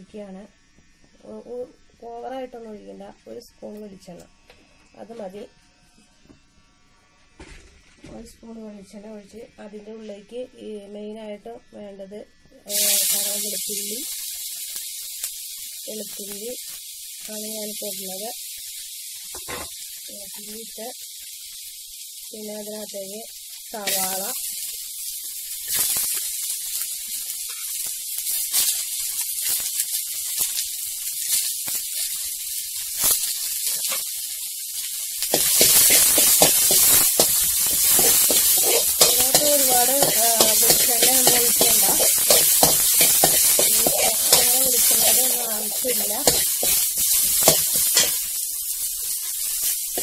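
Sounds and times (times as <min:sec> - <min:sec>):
onion sizzling in a pan: 0:06.2 - 0:50.0
spatula scraping and tapping pan: 0:35.3 - 0:48.3.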